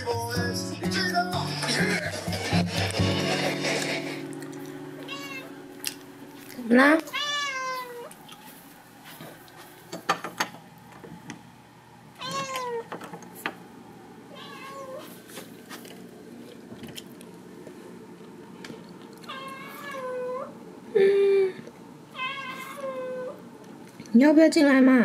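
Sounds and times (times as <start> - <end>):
cat meowing: 5.1 - 5.6, 7.1 - 8.1, 12.2 - 12.9, 14.3 - 15.1, 19.2 - 20.6, 22.1 - 23.4.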